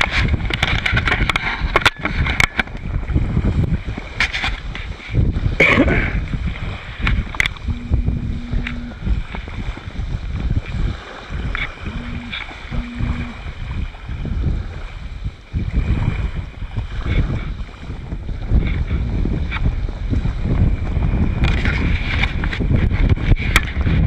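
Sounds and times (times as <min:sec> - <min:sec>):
wind buffeting microphone: 0:00.0 - 0:24.0
steady low hum: 0:07.2 - 0:09.8, 0:11.5 - 0:13.8.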